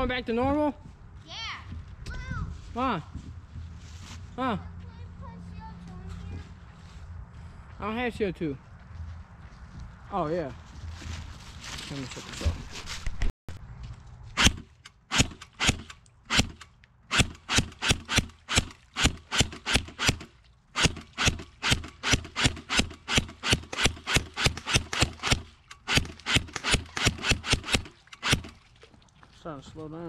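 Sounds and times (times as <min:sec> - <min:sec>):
footsteps on muddy trail: 0:08.6 - 0:14.4, 0:26.0 - 0:30.0.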